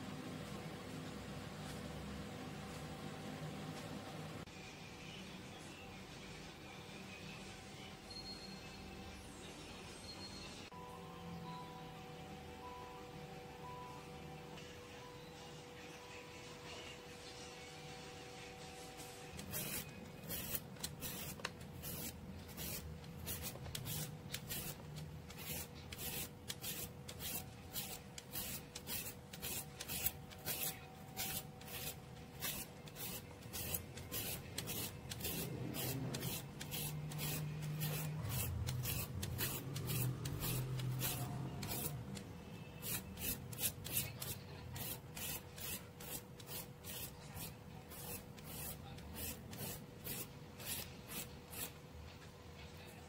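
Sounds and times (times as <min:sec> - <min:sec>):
peeler rasping on cucumber: 0:19.4 - 0:42.2, 0:42.8 - 0:51.7.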